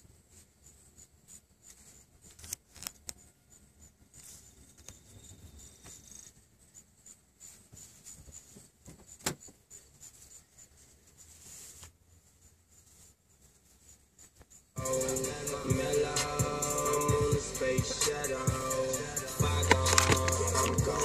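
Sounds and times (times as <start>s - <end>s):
background hiss: 0.0s - 21.0s.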